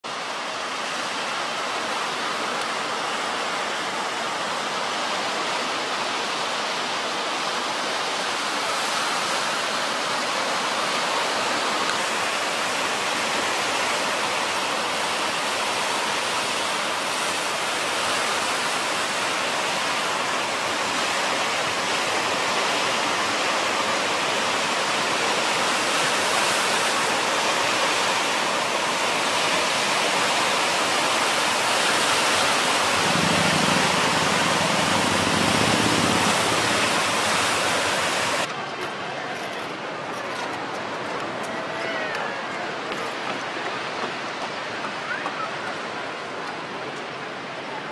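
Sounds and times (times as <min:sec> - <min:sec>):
distant surf hiss: 0:00.2 - 0:38.5.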